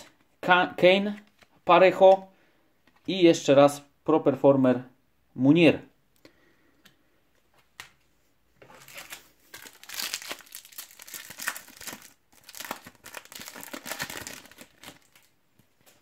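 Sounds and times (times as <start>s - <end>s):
wrapper crinkling and tearing: 8.7s - 15.4s.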